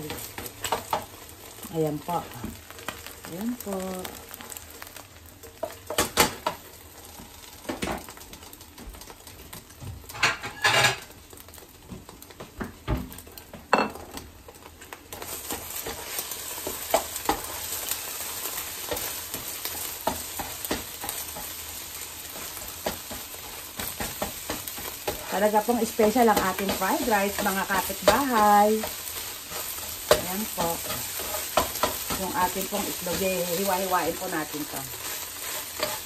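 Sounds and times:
eggs sizzling in frying pan: 0.0 - 36.0
spatula scraping and knocking pan: 10.0 - 11.1, 15.2 - 36.0.

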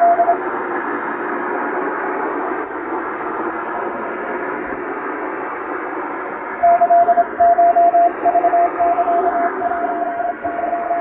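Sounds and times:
morse code tone: 0.0 - 0.4, 6.6 - 11.0.

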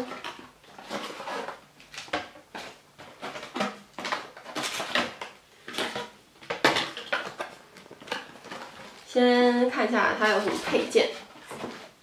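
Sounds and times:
cardboard and paper rustling: 0.0 - 12.0.

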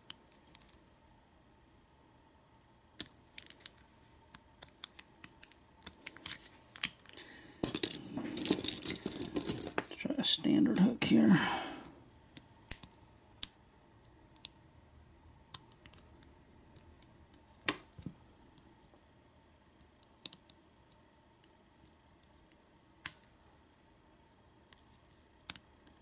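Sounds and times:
lock pins clicking: 4.6 - 9.9.

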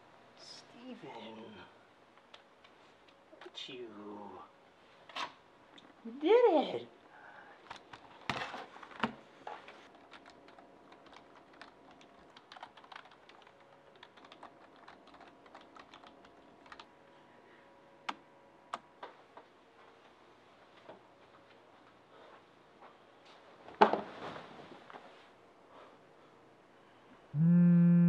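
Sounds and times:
typing on computer keyboard: 10.0 - 16.9.

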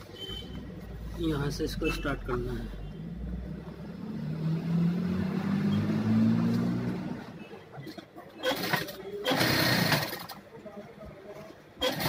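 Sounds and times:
sewing machine motor running: 8.4 - 10.4, 11.8 - 12.0.

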